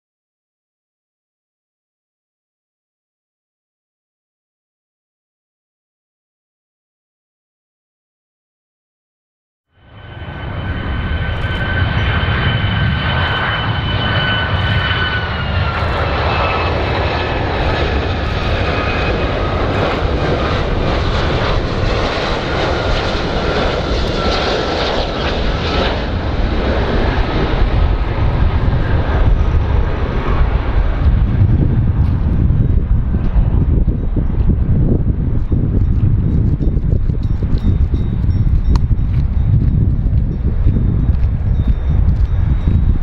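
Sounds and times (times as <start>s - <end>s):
jet engines rumbling and whining: 9.7s - 43.0s.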